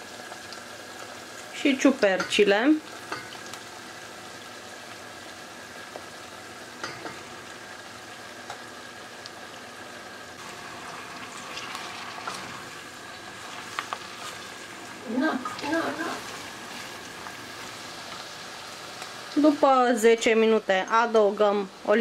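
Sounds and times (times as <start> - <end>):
vegetables sizzling in oil: 0.0 - 22.0.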